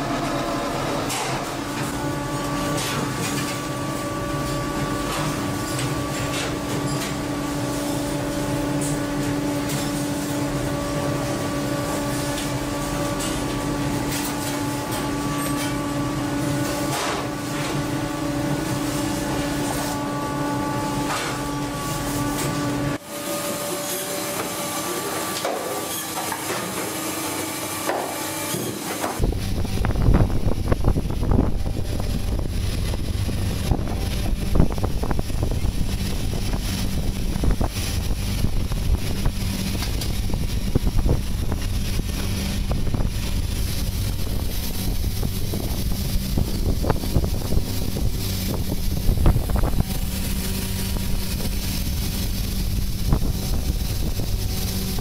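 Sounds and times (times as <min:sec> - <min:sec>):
conveyor machinery hum: 0:00.0 - 0:55.0
wind buffeting microphone: 0:29.2 - 0:55.0.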